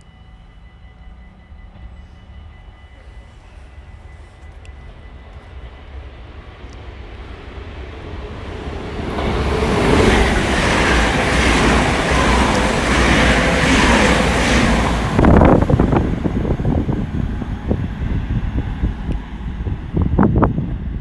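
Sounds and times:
train passing at speed: 0.0s - 21.0s
wind gust on microphone: 8.0s - 21.0s.

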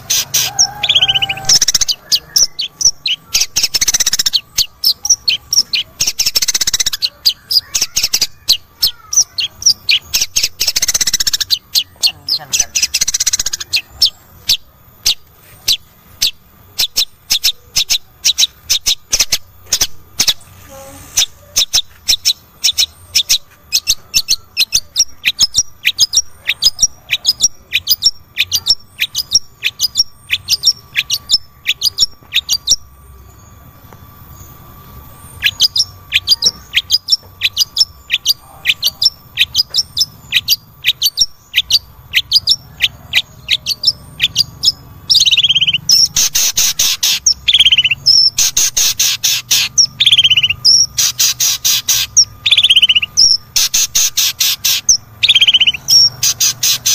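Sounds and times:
bird calling short sharp high calls: 0.0s - 14.1s, 35.4s - 56.9s.

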